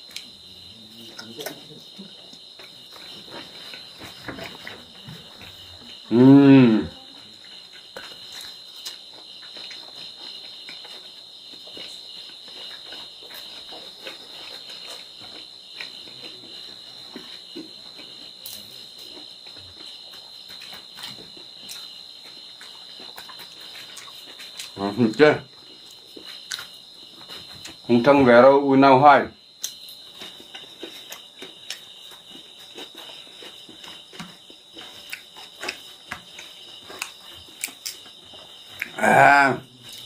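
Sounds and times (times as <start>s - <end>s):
crickets chirping: 0.0s - 40.0s
chewing and mouth sounds: 7.0s - 24.8s, 25.5s - 27.8s, 29.6s - 39.0s.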